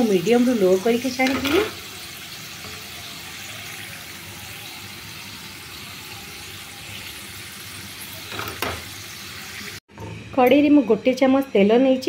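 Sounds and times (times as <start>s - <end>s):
potatoes sizzling in hot oil: 0.0s - 9.8s.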